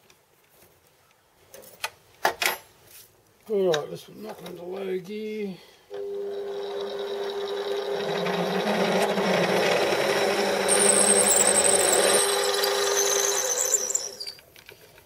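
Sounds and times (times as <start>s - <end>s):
lathe motor hum: 5.9s - 14.4s
drill cutting metal: 6.0s - 14.4s
drill high squeal: 6.1s - 14.4s.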